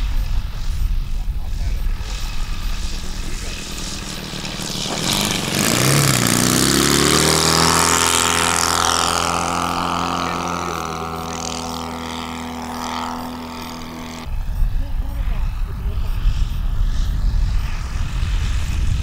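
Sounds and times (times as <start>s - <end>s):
model airplane flying by: 0.0s - 19.0s.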